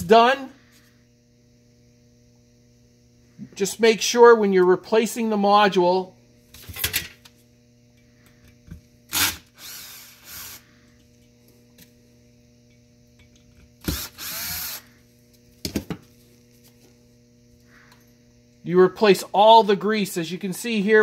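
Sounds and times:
cordless drill running: 9.1s - 10.7s, 13.8s - 15.0s.

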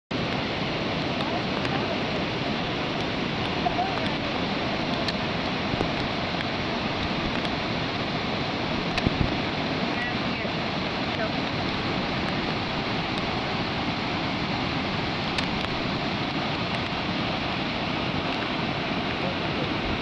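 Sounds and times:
floodwater rushing: 0.1s - 20.0s.

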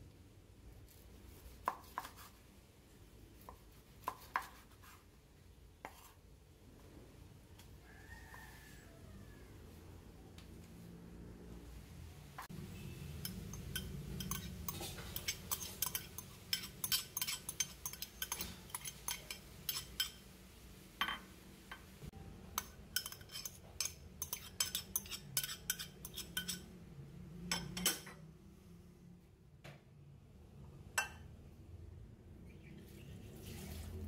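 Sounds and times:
metal spoon clinking against glass bowl: 13.1s - 20.2s, 22.6s - 26.7s.

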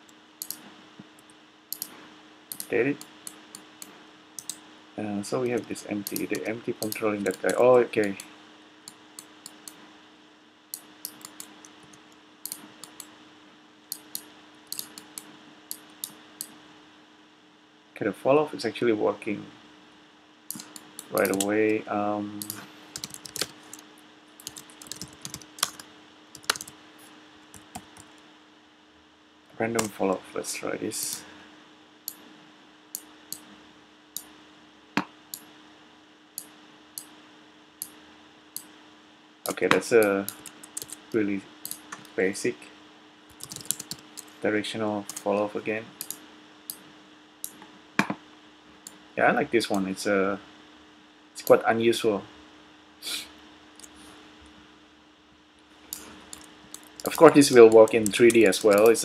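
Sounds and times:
faint steady hum: 0.0s - 59.0s
computer mouse clicking: 0.4s - 0.6s, 1.2s - 1.9s, 2.5s - 4.6s, 5.5s - 8.3s, 8.9s - 9.8s, 10.8s - 13.1s, 13.9s - 16.6s, 20.5s - 21.8s, 22.4s - 23.8s, 24.4s - 25.8s, 26.4s - 26.8s, 39.5s - 42.1s, 43.3s - 44.4s, 45.1s - 45.4s, 46.0s - 46.8s, 55.9s - 59.0s
mouse and keyboard clicks: 2.5s - 3.7s, 5.5s - 8.2s, 10.8s - 13.1s, 13.9s - 16.2s, 26.4s - 26.7s, 55.9s - 59.0s.

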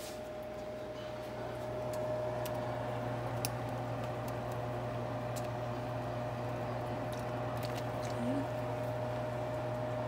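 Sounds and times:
broth boiling: 0.0s - 10.0s
kitchen hum with whine: 0.0s - 10.0s.

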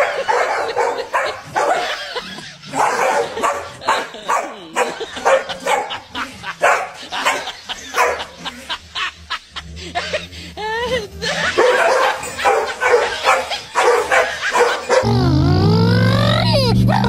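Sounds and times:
dog barking: 0.0s - 6.0s, 6.6s - 8.4s, 11.4s - 15.1s.

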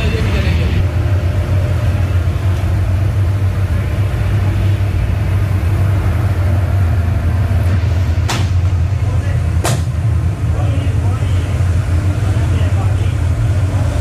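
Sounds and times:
street traffic rumble: 0.0s - 14.0s
sharp knock: 8.2s - 8.7s, 9.6s - 9.9s.

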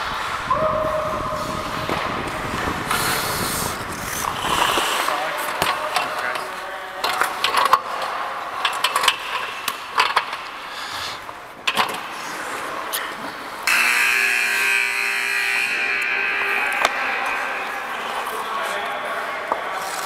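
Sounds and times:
skates scraping on ice: 1.4s - 13.6s, 16.4s - 20.0s
scoreboard buzzer blaring: 13.6s - 18.6s.

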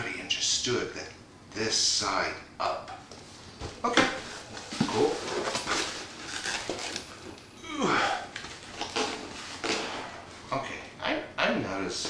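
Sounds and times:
man groaning: 7.6s - 8.3s.

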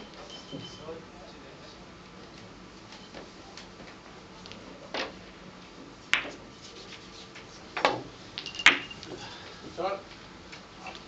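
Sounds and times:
cue and balls clicking: 6.1s - 6.4s, 7.3s - 9.2s.

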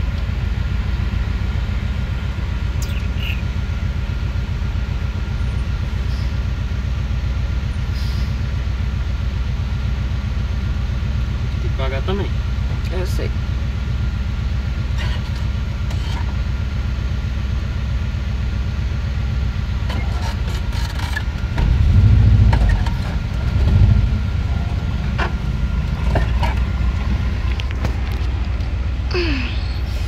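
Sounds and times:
van engine rumbling: 0.0s - 30.0s.

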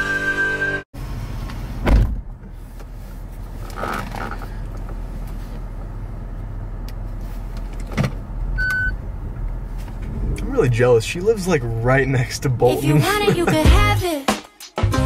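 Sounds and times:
car engine rumble inside cabin: 1.0s - 13.6s
loud thump: 1.8s - 2.3s.

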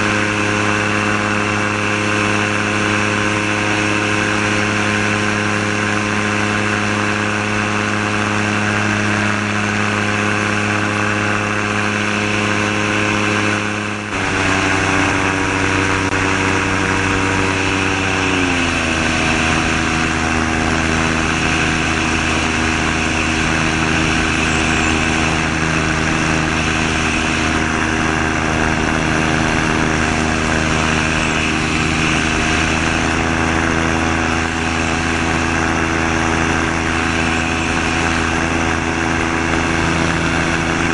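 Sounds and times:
aircraft engine and propeller drone: 0.0s - 40.9s
air rushing past: 11.8s - 40.9s.

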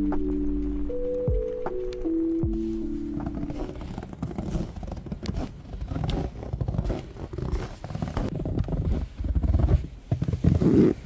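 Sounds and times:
boots crunching through snow: 2.5s - 11.0s.

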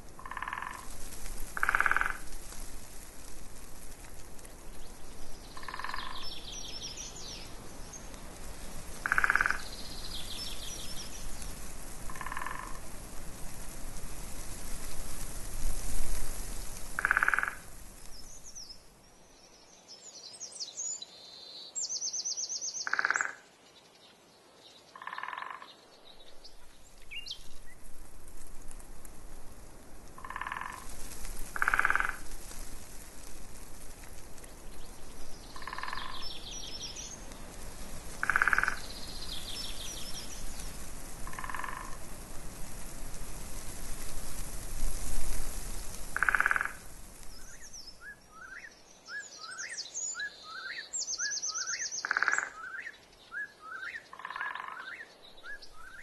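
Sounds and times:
frogs croaking: 0.2s - 2.3s, 5.5s - 6.4s, 9.0s - 10.0s, 12.1s - 12.9s, 17.0s - 17.7s, 22.8s - 23.5s, 24.9s - 25.8s, 30.2s - 30.9s, 31.5s - 32.3s, 35.5s - 36.7s, 38.2s - 39.1s, 41.2s - 42.0s, 46.2s - 47.6s, 51.6s - 52.9s, 53.8s - 55.1s
songbirds chirping and trilling: 4.7s - 11.6s, 34.7s - 37.6s, 46.2s - 56.0s.

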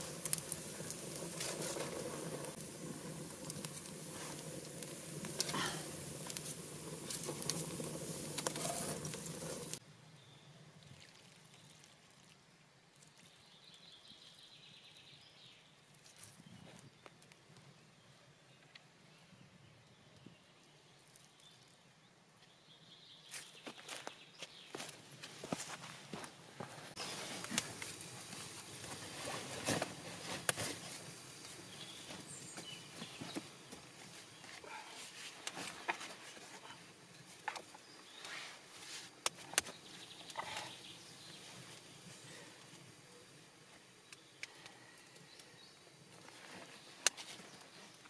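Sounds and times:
faint woodland ambience: 0.0s - 48.0s
clothing and wood rustling: 23.4s - 39.6s.

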